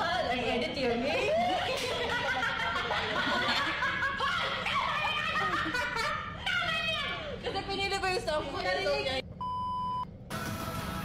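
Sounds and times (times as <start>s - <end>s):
young women laughing and giggling: 1.2s - 8.0s.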